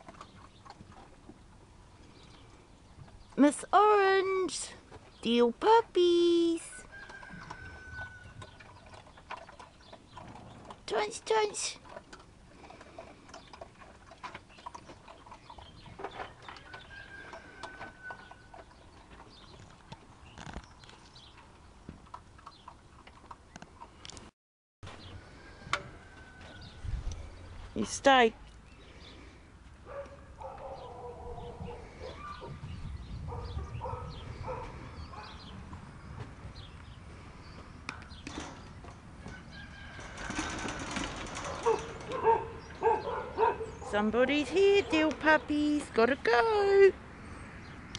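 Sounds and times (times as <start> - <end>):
puppies crunching kibble: 7.0 - 24.3.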